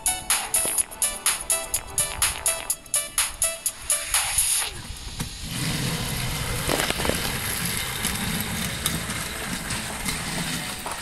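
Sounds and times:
toy train motor whirring: 5.4 - 11.0.

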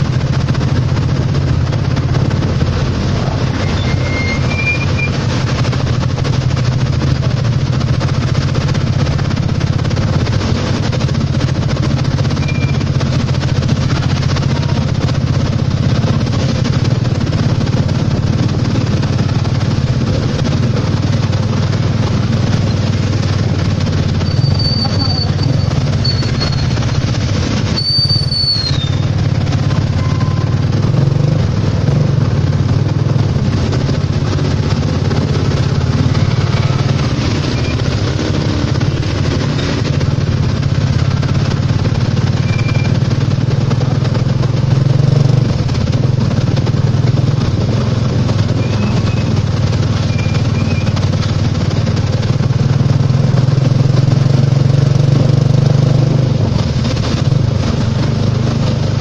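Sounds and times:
motorcycle engine running: 0.0 - 59.0
brief high squeals: 3.6 - 5.2, 24.2 - 26.9, 27.8 - 29.1
tyres hissing on wet road: 18.7 - 46.4.

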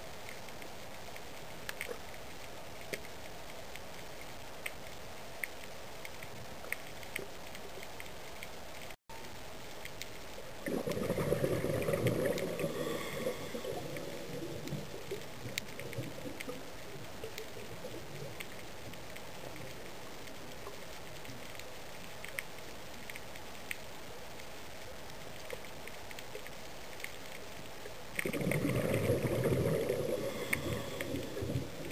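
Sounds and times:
sharp underwater clicks: 0.2 - 9.0, 9.7 - 31.9
underwater hiss: 10.6 - 16.3, 28.2 - 31.9
gurgling bubbles: 10.6 - 18.0, 28.2 - 31.9.

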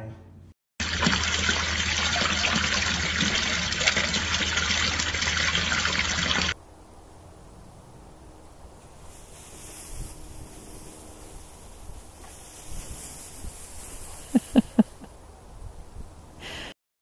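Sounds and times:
fountain water splashing into basin: 0.8 - 6.6
faint hiss: 8.8 - 14.9.

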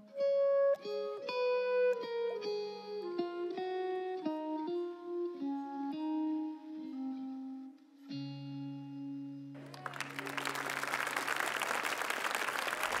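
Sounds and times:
audience applause: 9.6 - 13.0.

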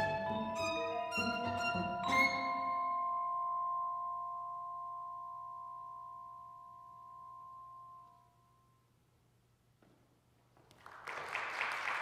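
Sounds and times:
audience applause: 10.8 - 12.0.

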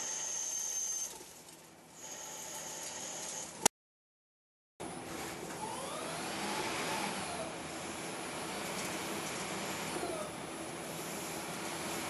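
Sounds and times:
lathe whirring: 4.8 - 12.0.

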